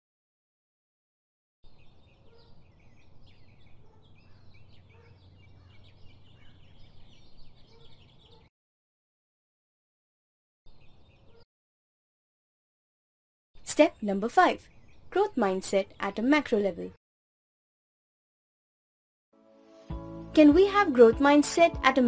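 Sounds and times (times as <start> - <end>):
small birds chirping: 1.6 - 8.5, 10.7 - 11.5, 13.6 - 16.9.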